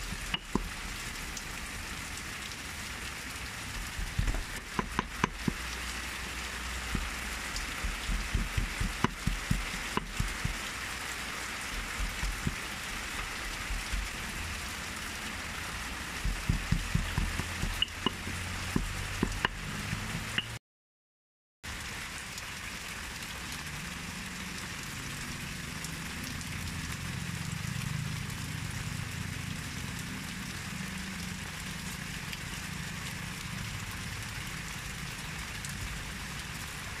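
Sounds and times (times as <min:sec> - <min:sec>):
pestle pounding in stone mortar: 0:00.1 - 0:00.8, 0:03.9 - 0:05.7, 0:06.9 - 0:10.7, 0:11.7 - 0:14.2, 0:16.2 - 0:20.5.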